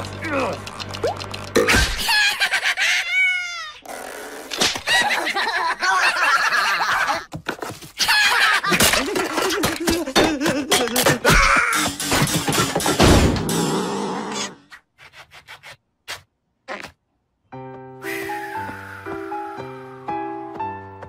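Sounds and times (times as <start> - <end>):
high-pitched cackling laughter: 1.6 - 3.8, 4.8 - 7.3, 8.0 - 11.6
falling whistle sound effect: 18.0 - 19.4.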